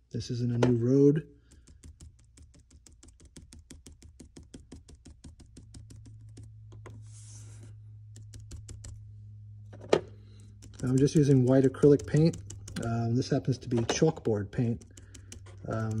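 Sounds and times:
paintbrush tapping through stencil: 1.4 - 7.0, 10.4 - 16.0
low steady hum: 4.0 - 16.0.

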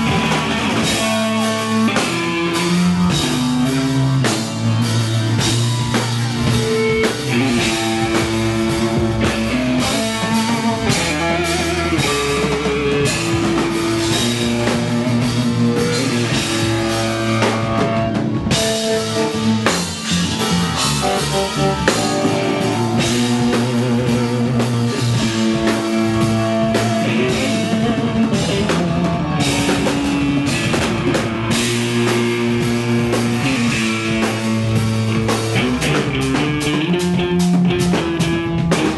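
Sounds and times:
drum kit beat: 0.0 - 38.9
funk band playing: 0.0 - 38.9.

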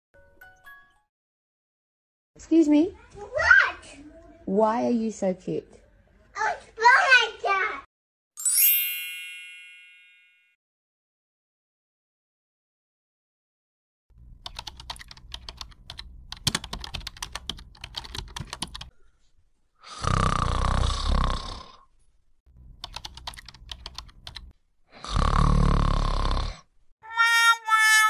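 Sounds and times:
computer keyboard typing: 14.4 - 18.9, 22.8 - 24.5
loud snoring: 19.8 - 21.9, 24.9 - 26.7.

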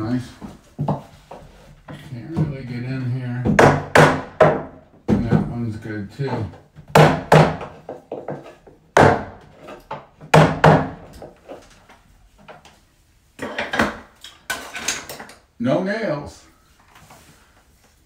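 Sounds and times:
wooden block knocking on molding: 3.4 - 5.6.

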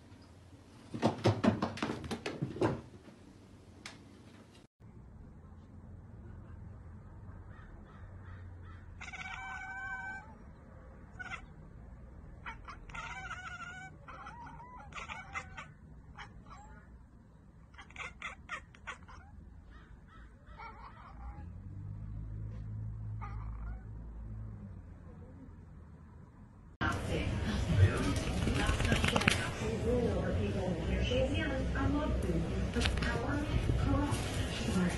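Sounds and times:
crow cawing: 7.5 - 10.4, 17.8 - 21.3.

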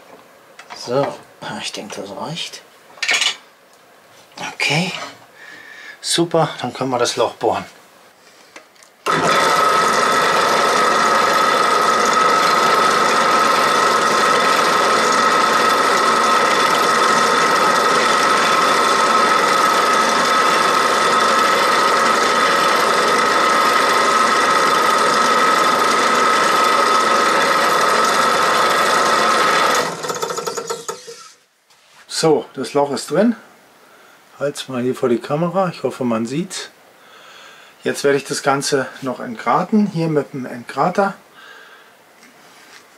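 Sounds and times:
drill press whining: 9.0 - 31.4
drill bit drilling plastic: 9.1 - 31.4.

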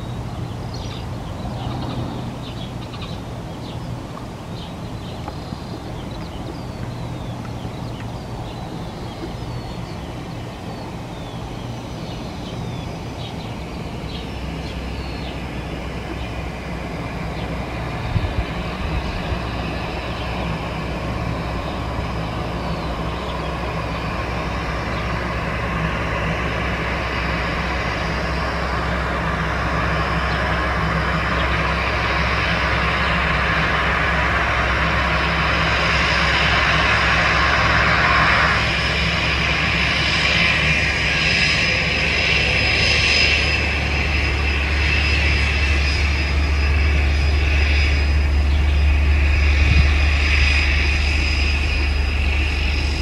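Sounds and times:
small birds chirping: 0.0 - 16.4
aircraft engines humming: 0.0 - 53.0.

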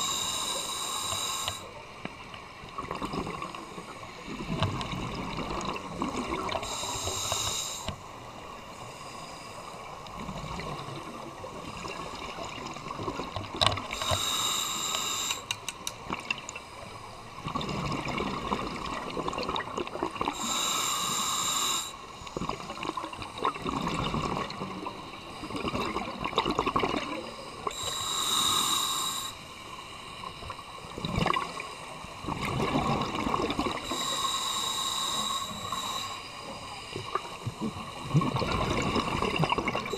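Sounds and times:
regulator inhale hiss: 0.0 - 2.0, 6.2 - 10.1, 13.8 - 15.8, 20.3 - 22.7, 27.2 - 30.9, 33.5 - 39.9
exhaled bubbles gurgling: 2.6 - 7.2, 17.3 - 20.7, 21.8 - 29.3, 30.4 - 39.9.

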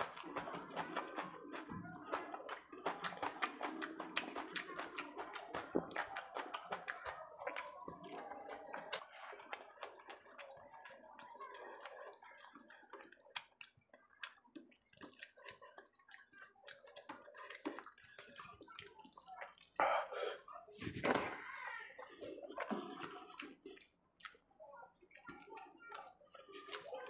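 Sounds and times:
hand squishing rice with gravy: 0.0 - 19.8
chewing with wet mouth clicks: 0.0 - 21.3, 22.0 - 27.0.

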